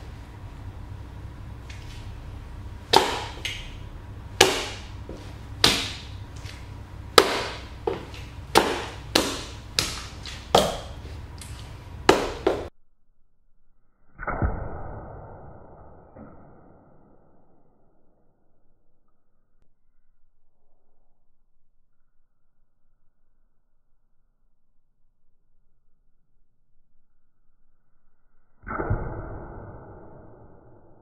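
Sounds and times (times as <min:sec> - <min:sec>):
boots stomping on tile floor: 0:07.2 - 0:12.7.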